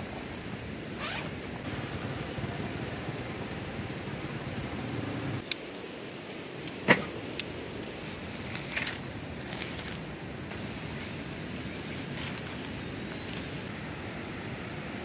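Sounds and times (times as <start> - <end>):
steady background hiss: 0.0 - 15.0
tent fabric rustling: 0.9 - 1.6, 7.9 - 13.8
tent pole clicking: 1.0 - 1.4, 5.4 - 13.7.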